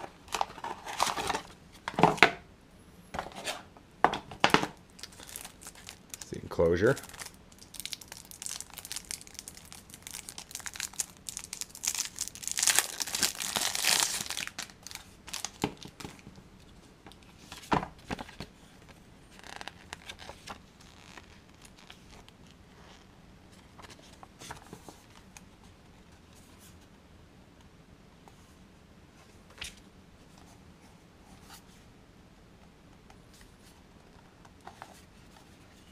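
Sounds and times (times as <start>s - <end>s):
plastic wrap crackling: 5.0s - 16.2s.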